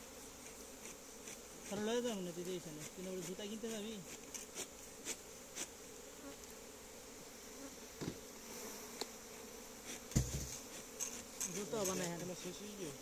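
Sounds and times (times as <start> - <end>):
bees buzzing: 0.0 - 13.0
dull thump: 8.0 - 8.2, 10.1 - 10.6.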